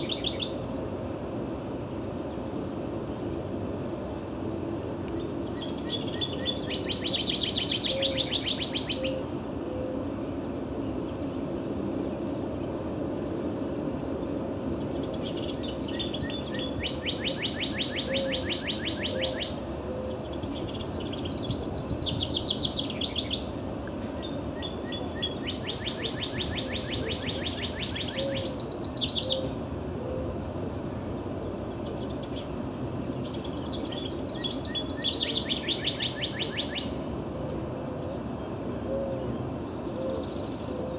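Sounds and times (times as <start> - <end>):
cardinal singing trills: 0.0 - 0.6, 5.2 - 10.1, 14.0 - 40.9.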